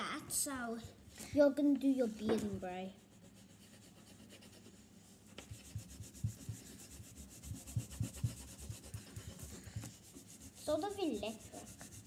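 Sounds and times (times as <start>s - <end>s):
crayon scrubbing on paper: 2.5s - 12.0s.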